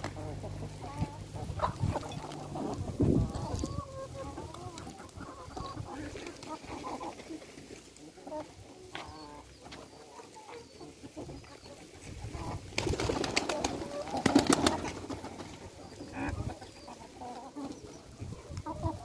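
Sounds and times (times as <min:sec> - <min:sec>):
hens clucking: 0:00.0 - 0:19.0.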